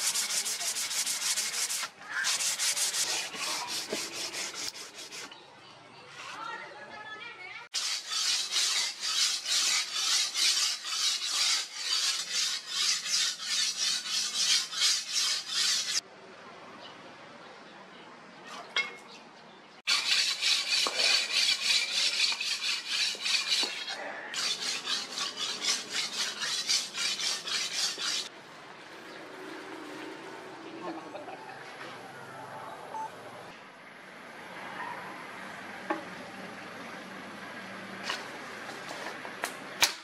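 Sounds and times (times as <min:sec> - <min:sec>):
blade scraping on whetstone: 0:00.0 - 0:05.4, 0:07.8 - 0:16.0, 0:19.9 - 0:28.3.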